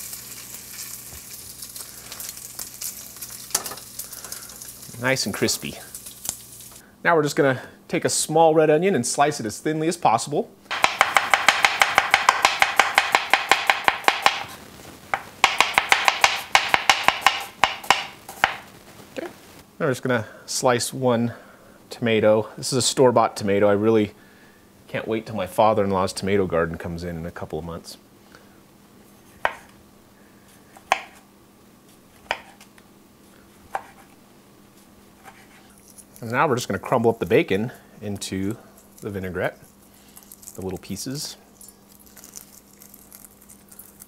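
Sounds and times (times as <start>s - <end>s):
knife knocking on wooden board: 10.7s - 14.4s
knife slicing on wooden board: 32.2s - 32.6s, 33.7s - 34.1s, 35.2s - 36.0s.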